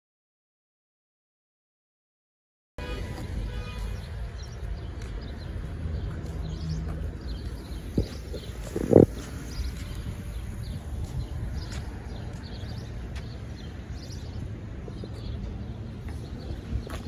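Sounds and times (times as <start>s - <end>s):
distant traffic: 2.8s - 17.0s
footsteps on pavement: 2.8s - 17.0s
wind on microphone: 7.1s - 13.0s.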